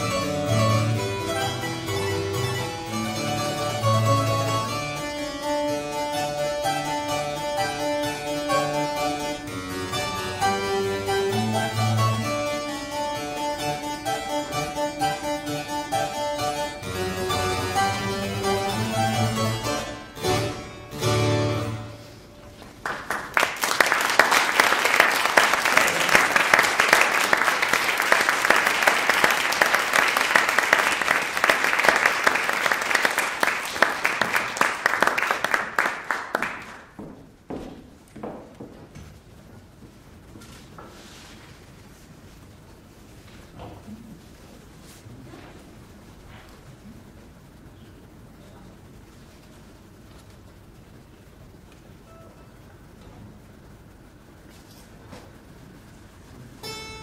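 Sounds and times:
harpsichord playing: 0.0 - 22.3, 56.6 - 57.0
audience applauding: 22.6 - 37.0.

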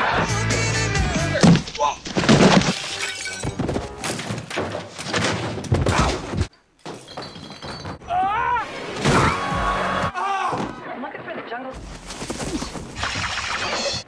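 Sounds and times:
people falling with thuds: 1.3 - 2.8, 3.5 - 8.0
something shattering: 1.4 - 8.1.

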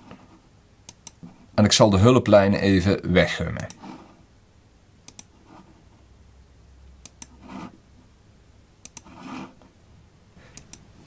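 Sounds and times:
computer mouse button clicking: 5.1 - 5.3, 7.0 - 7.4, 8.8 - 9.1, 10.6 - 10.8.

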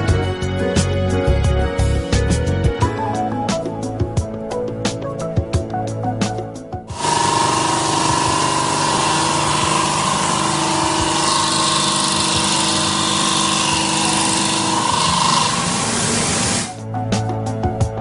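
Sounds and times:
stone saw grinding: 6.9 - 16.8.

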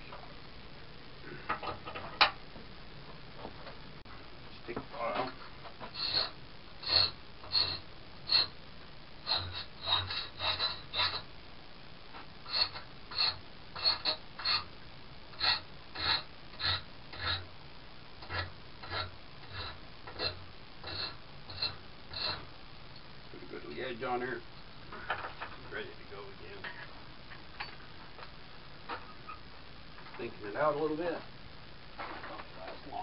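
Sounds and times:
hand file rasping on metal: 5.9 - 8.6, 9.3 - 11.2, 12.5 - 14.7, 15.4 - 17.5, 18.2 - 22.5.

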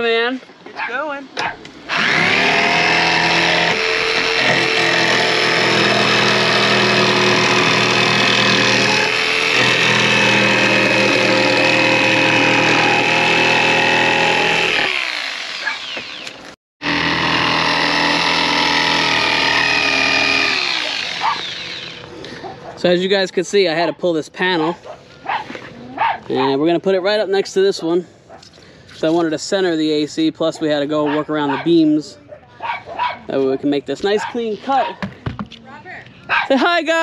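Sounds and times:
jigsaw cutting: 1.9 - 22.1.

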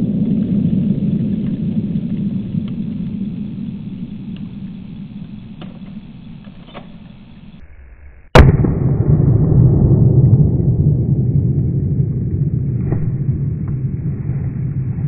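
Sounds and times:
low rolling rumble: 0.0 - 15.0
low rumble: 0.0 - 15.0
rifle shot: 8.3 - 9.9.

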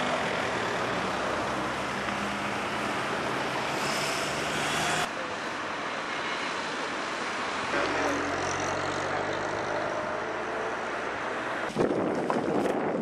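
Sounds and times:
wind on microphone: 11.6 - 13.0.

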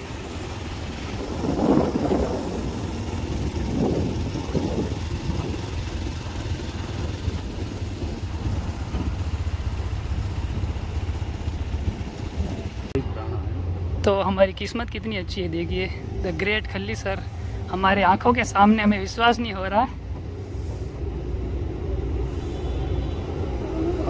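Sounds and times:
motorcycle engine running: 0.0 - 14.6.

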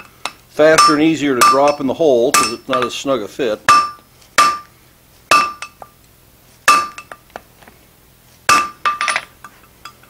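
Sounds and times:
hammer striking hot metal on anvil: 0.7 - 2.9, 3.7 - 4.7, 5.3 - 5.9, 6.7 - 7.2, 8.5 - 9.2.

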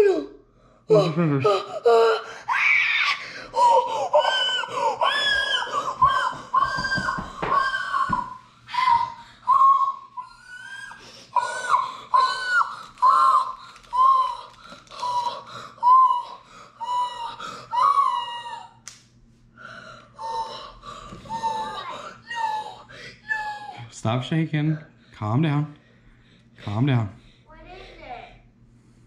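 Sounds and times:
boy breathing: 0.0 - 2.5, 3.1 - 7.7, 8.4 - 18.2, 19.5 - 23.8, 25.8 - 29.0
boy squealing and sobbing: 0.0 - 18.8, 20.2 - 23.9.

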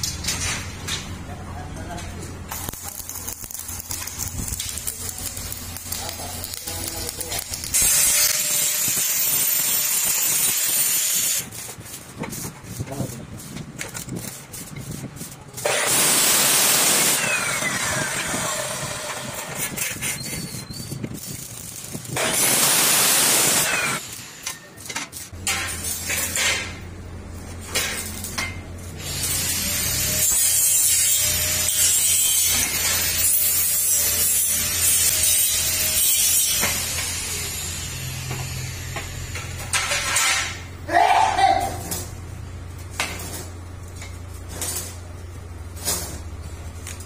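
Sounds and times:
abrasive saw cutting steel: 5.5 - 11.6, 15.5 - 20.6, 22.1 - 24.8, 29.0 - 40.7.

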